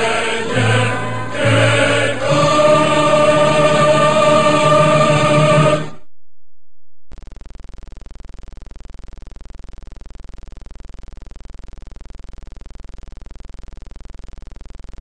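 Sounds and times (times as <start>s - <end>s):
low hum: 0.0s - 7.2s.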